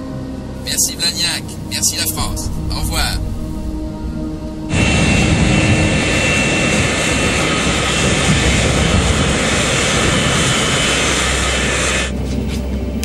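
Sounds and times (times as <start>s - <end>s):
faint high whine: 0.0s - 12.2s
jet engines roaring: 0.6s - 13.0s.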